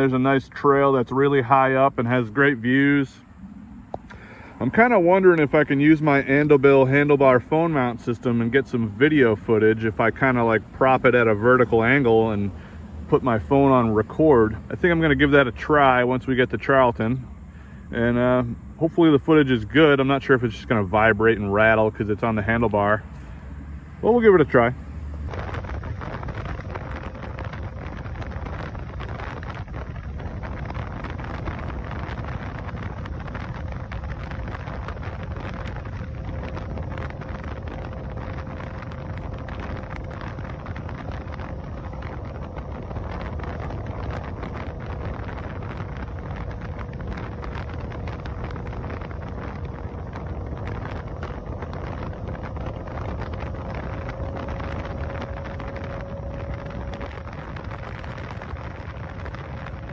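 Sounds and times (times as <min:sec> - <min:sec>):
road and tyre noise: 0:00.0 - 0:59.9
wind buffeting microphone: 0:00.0 - 0:59.9
electric motor whine: 0:25.2 - 0:59.9.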